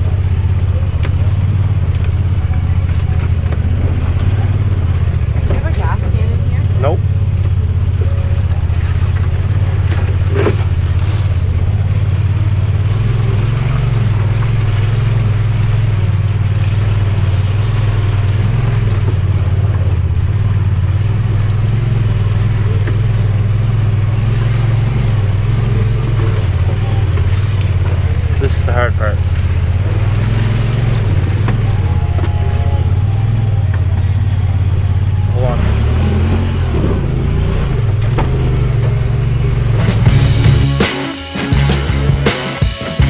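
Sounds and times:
utility vehicle engine droning: 0.0s - 43.0s.

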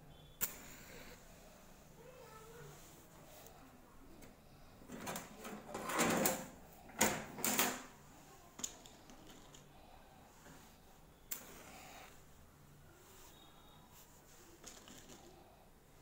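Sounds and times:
metal plates rustling and rubbing: 4.8s - 7.9s.

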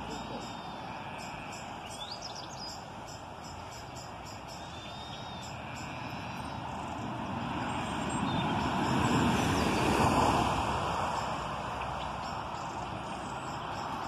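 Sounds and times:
faint bird chirps: 0.0s - 6.8s
passing vehicle rumble: 0.0s - 14.0s.

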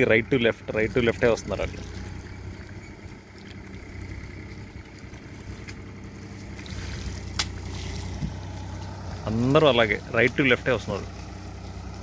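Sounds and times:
water sloshing: 1.7s - 9.2s.

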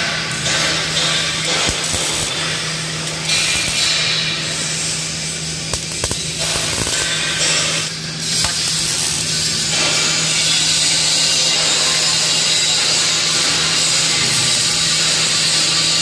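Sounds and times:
steady low hum: 0.0s - 10.7s
welding arc crackling: 0.0s - 16.0s.

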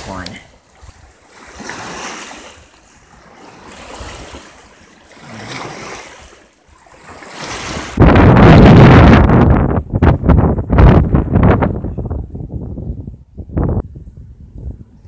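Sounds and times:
waves washing against rocks: 0.0s - 8.0s
wind buffeting microphone: 0.0s - 15.0s.

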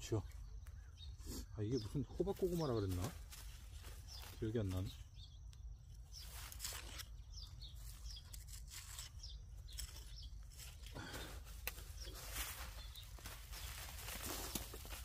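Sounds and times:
hand tool scraping soil: 6.3s - 12.7s.

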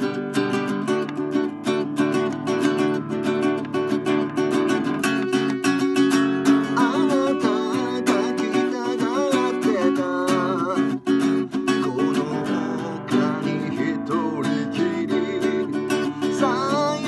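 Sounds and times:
classical guitar strumming: 0.0s - 17.0s
man singing: 6.4s - 17.0s.

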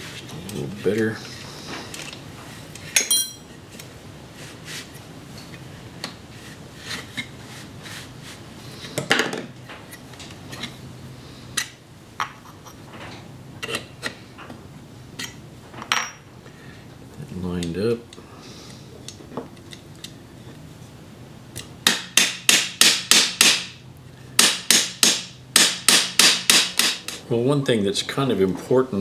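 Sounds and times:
metal parts clicking and clinking: 3.0s - 3.4s.

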